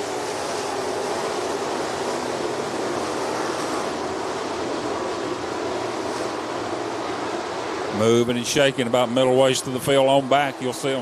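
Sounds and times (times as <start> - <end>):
race car engines: 0.0 - 11.0.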